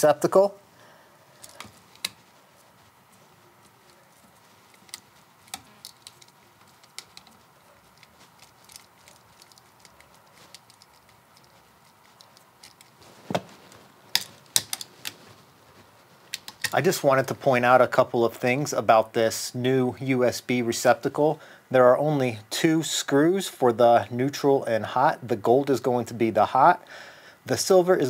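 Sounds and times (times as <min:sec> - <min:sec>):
screwdriver turning screws: 0:01.4 - 0:02.2, 0:04.6 - 0:13.0.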